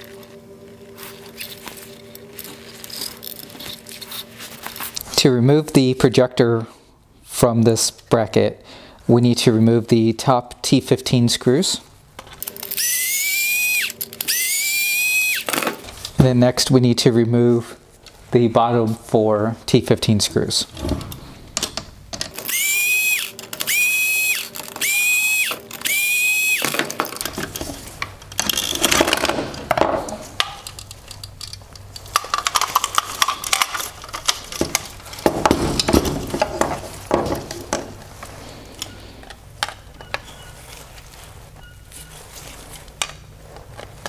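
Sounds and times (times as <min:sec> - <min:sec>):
electric screwdriver whining: 0:12.4 - 0:15.7, 0:22.3 - 0:27.0
plastic parts and screws rattling: 0:21.6 - 0:38.2.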